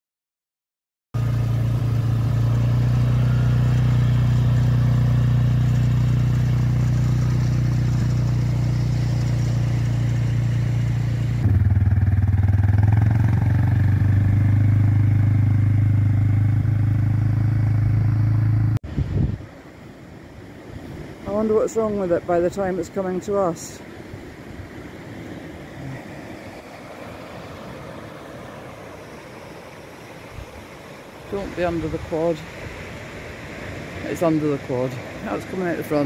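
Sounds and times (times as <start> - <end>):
quad bike engine running: 1.2 - 18.8.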